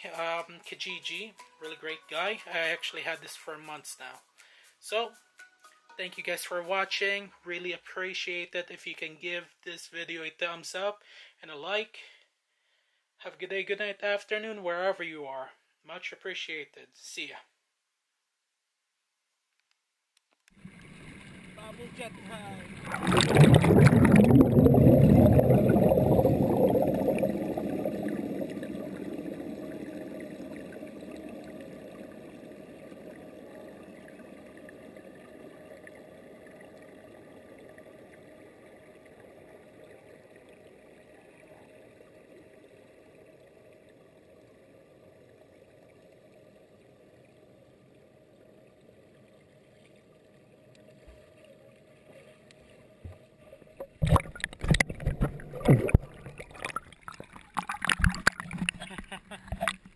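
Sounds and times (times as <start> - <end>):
underwater bubble jets gurgling: 20.6 - 47.5, 53.7 - 59.9.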